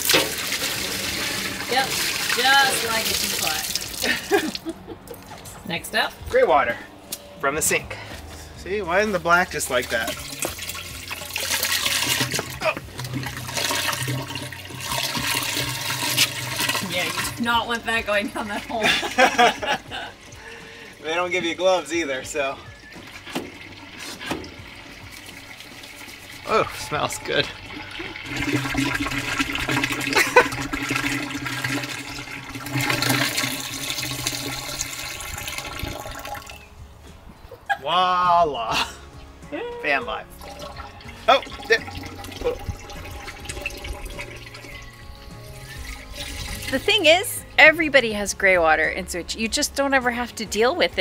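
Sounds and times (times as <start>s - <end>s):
water rushing out of drain hose: 0.0s - 4.4s, 9.4s - 17.6s, 23.1s - 36.6s, 40.4s - 47.1s.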